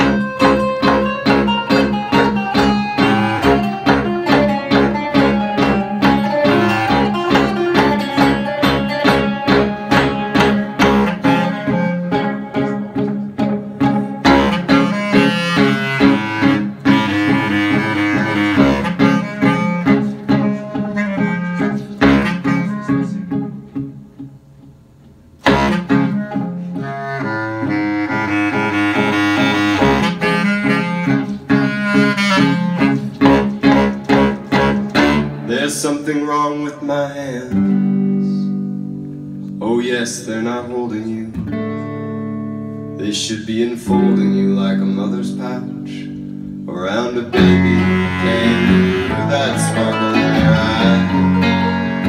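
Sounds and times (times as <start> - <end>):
bass clarinet lead line: 0.0 - 24.2, 25.4 - 40.4, 41.4 - 52.0
strummed bouzouki: 0.0 - 24.4, 45.9 - 52.0
electric guitar: 0.0 - 52.0.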